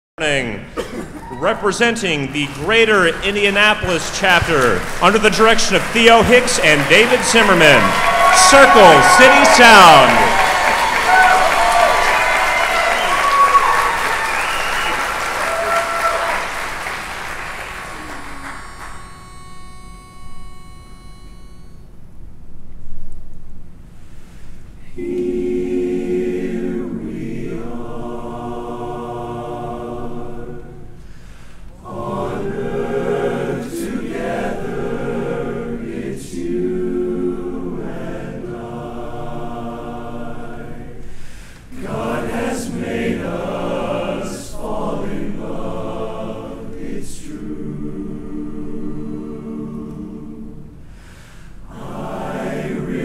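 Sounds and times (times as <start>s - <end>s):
men's chorus singing a cappella: 25.0s - 31.0s, 31.8s - 50.8s, 51.6s - 53.0s.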